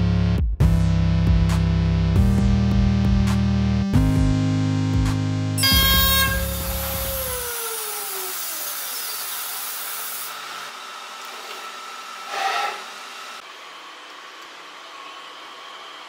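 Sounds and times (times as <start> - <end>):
engraving spindle whining: 5.6 - 11.1
short rasp: 12.2 - 13.0.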